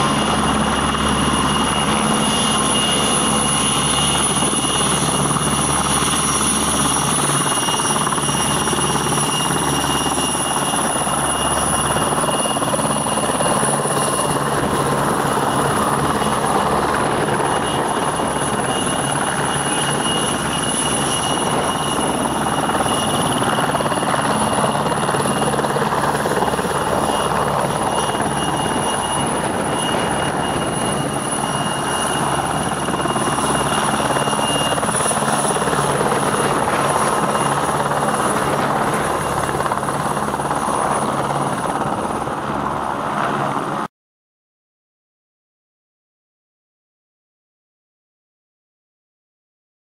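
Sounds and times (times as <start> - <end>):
high turbine whine: 0.0 - 43.8
helicopter rotor running: 0.0 - 43.9.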